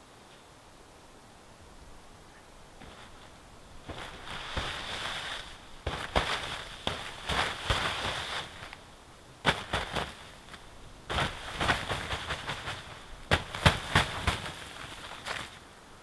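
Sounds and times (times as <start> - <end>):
snow sliding off hissing: 2.7 - 16.0
slaps and thumps on tent fabric: 2.8 - 8.8, 9.4 - 15.6.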